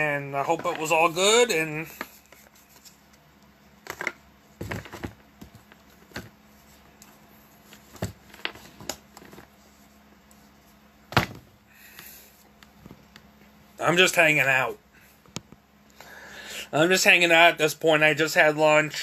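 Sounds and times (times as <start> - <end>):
cards tapping and rustling: 3.8 - 6.4.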